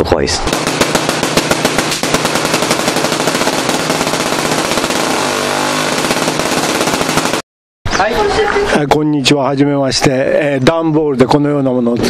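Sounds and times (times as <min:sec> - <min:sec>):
tesla coil crackling buzz: 0:00.5 - 0:07.4.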